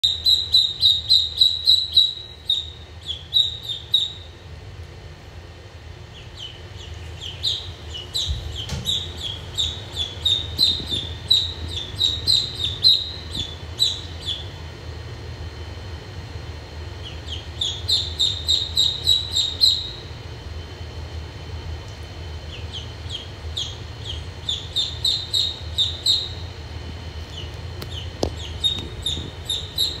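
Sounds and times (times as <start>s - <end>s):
duckling peeping: 0.0s - 4.4s, 6.1s - 14.6s, 17.0s - 20.1s, 22.4s - 26.6s, 27.2s - 30.0s.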